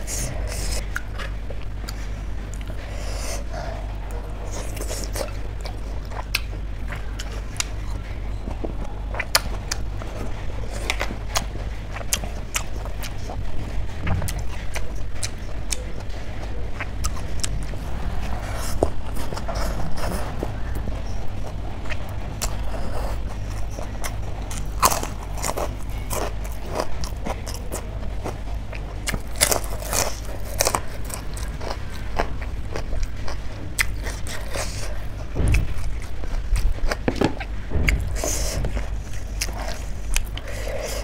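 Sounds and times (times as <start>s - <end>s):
chewing and crunching food: 0.0s - 41.0s
steady low hum: 0.0s - 41.0s.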